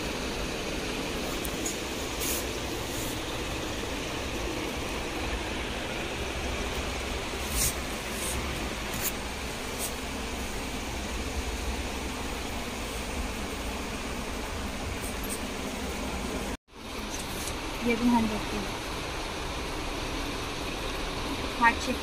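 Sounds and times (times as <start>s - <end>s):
shop background hum and hiss: 0.0s - 22.0s.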